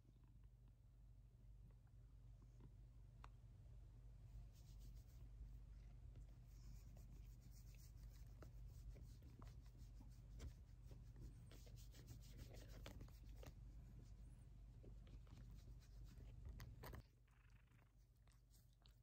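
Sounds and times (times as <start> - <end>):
low steady hum: 0.0 - 19.0
hand stroking cat fur: 4.3 - 17.0.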